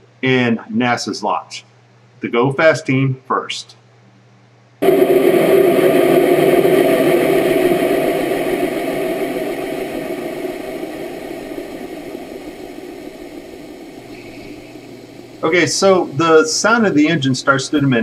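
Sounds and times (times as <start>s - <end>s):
rocket motor rushing: 4.8s - 17.3s.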